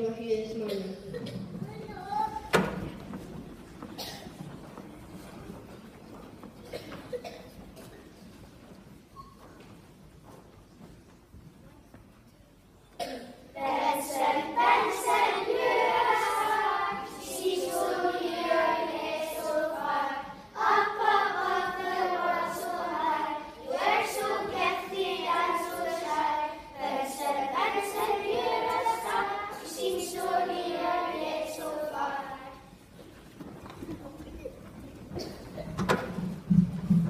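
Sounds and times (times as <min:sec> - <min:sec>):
children singing together: 0:13.0 - 0:32.8.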